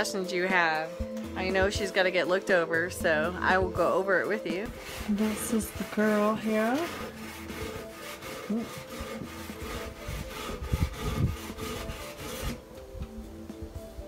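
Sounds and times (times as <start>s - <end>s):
rapid rhythmic scraping: 3.8s - 12.6s.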